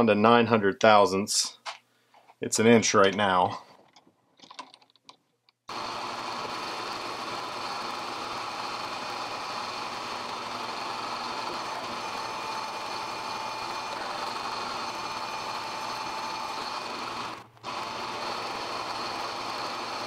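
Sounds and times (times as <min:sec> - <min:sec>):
metal lathe whirring: 0:05.7 - 0:20.0.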